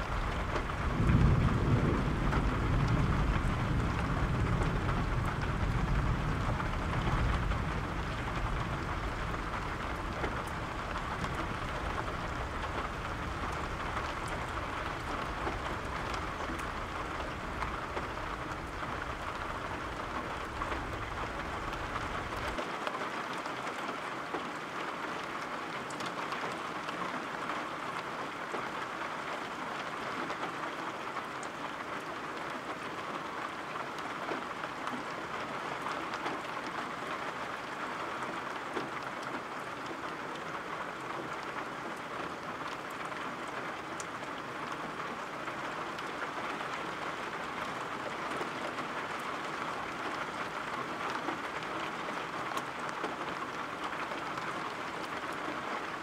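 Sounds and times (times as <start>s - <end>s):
rolling thunder: 0.0s - 22.6s
steady rain: 0.0s - 56.0s.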